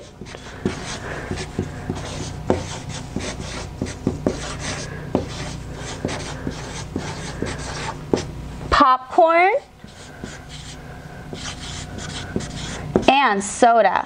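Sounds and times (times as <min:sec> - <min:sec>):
marker squeaking on paper: 0:00.0 - 0:08.3, 0:09.8 - 0:13.3.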